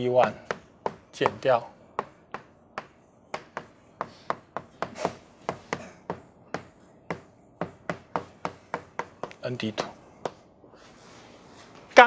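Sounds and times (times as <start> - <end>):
chalk tapping and scratching blackboard: 0.0 - 10.4.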